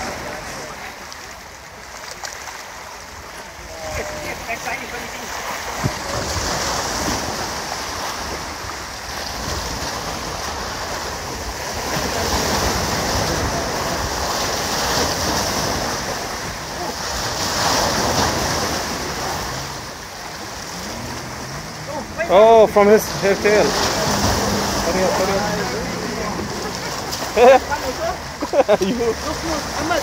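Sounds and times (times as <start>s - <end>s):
waves washing against rocks: 0.0s - 30.0s.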